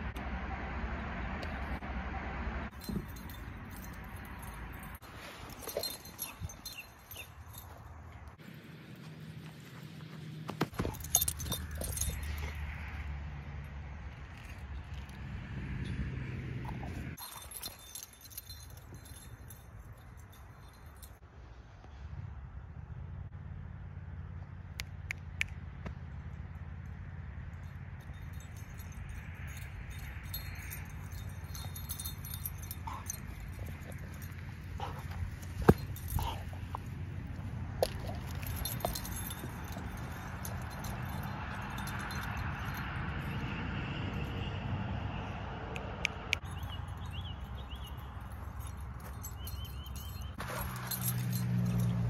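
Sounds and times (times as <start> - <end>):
dog collar tags jingling: 2.7 - 8.4, 10.7 - 13.1, 14.0 - 21.2, 26.8 - 43.6, 46.3 - 52.0.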